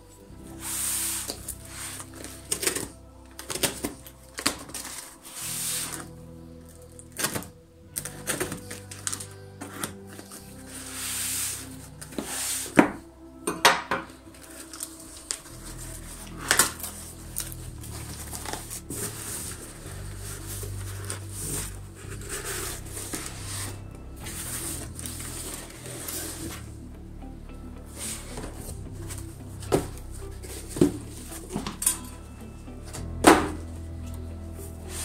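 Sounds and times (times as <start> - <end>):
packaging handling noise: 1.1 - 6.1.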